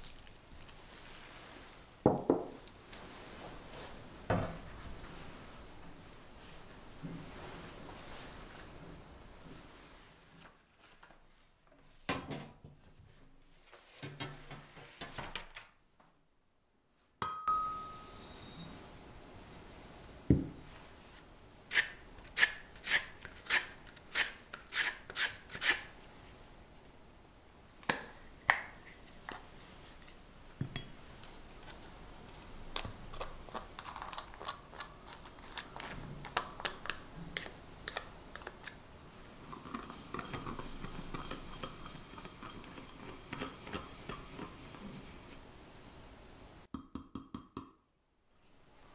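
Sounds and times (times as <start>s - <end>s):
wire whisk scraping glass bowl: 39.5s - 45.4s.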